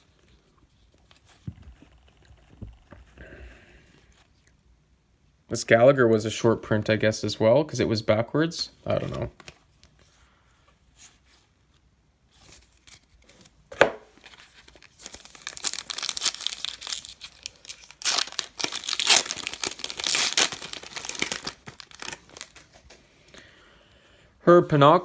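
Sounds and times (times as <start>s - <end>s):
foil wrapper tearing and crinkling: 14.2s - 22.7s.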